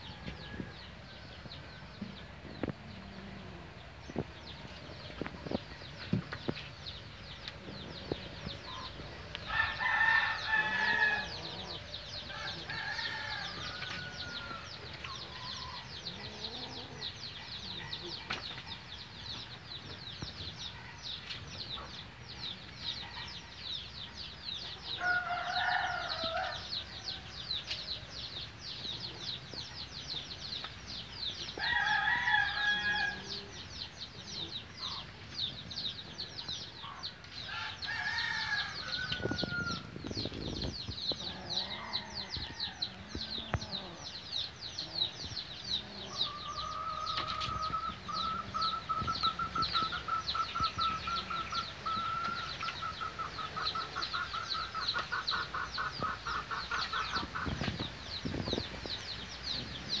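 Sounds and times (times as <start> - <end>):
rooster crowing: 9.5 - 11.6, 37.5 - 39.9.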